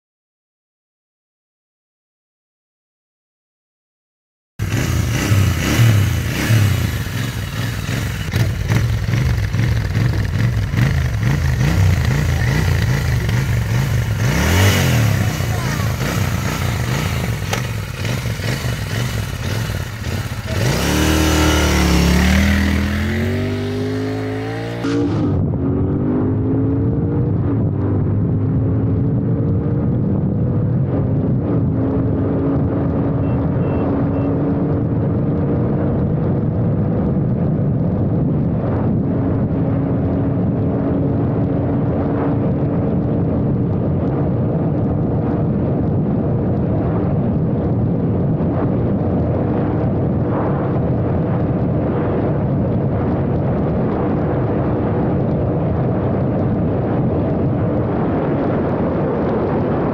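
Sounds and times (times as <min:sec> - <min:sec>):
motorcycle engine running hard: 0:04.6 - 0:59.9
wind rush over microphone: 0:04.6 - 0:59.9.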